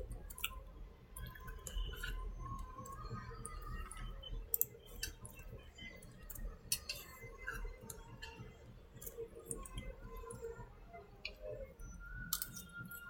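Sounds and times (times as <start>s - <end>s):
computer mouse clicking: 2.8s - 5.4s, 12.3s - 13.0s.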